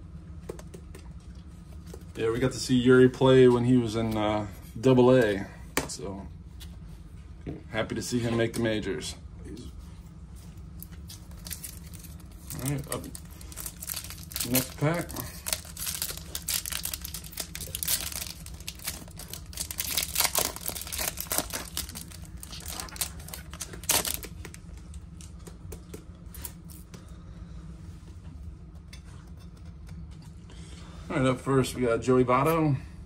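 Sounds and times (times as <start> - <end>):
plastic wrapper crinkling and tearing: 10.8 - 25.3
cards rustling and clicking: 10.8 - 26.6.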